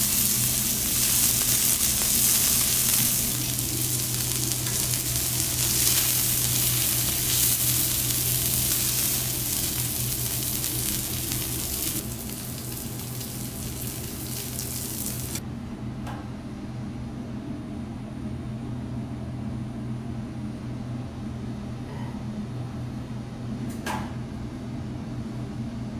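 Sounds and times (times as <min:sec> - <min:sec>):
steak sizzling on a griddle: 0:00.0 - 0:15.4
low steady hum: 0:00.0 - 0:21.8.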